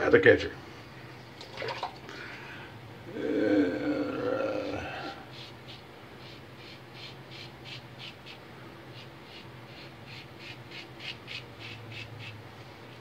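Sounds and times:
razor scraping stubble: 5.3 - 12.4.

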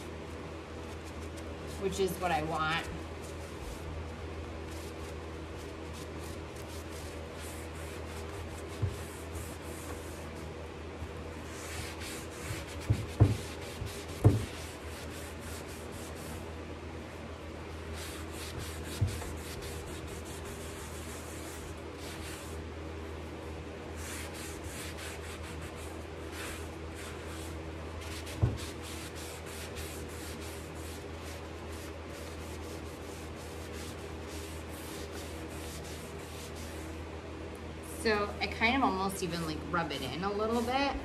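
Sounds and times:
steady low hum: 0.0 - 41.0
paper towel rubbing on wood: 4.7 - 10.5, 11.4 - 16.5, 17.9 - 22.6, 23.9 - 36.9, 40.0 - 41.0.

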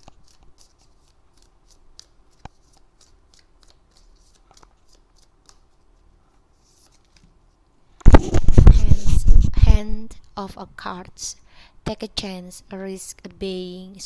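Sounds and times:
cards being shuffled: 0.0 - 7.4, 8.1 - 9.6.

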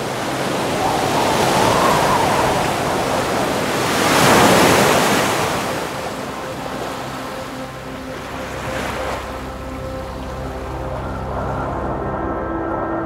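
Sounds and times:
surf breaking on rocky shore: 0.0 - 7.0.

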